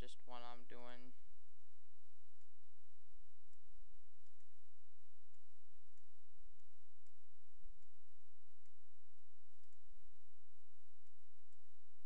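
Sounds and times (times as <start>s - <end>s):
low electrical hum: 0.0s - 12.0s
computer mouse clicking: 3.4s - 10.2s.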